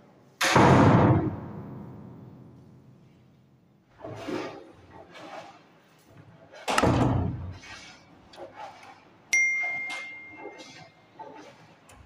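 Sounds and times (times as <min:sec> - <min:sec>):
bell-like ding: 0:09.3 - 0:10.6.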